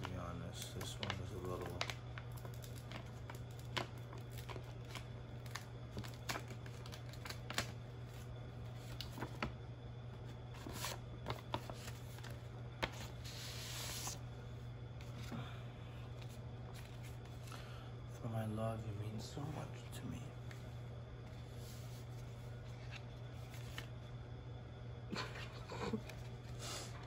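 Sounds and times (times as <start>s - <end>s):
paper rustling and clicking: 0.0s - 9.6s, 10.5s - 14.2s
paper sliding or tearing: 13.0s - 14.2s.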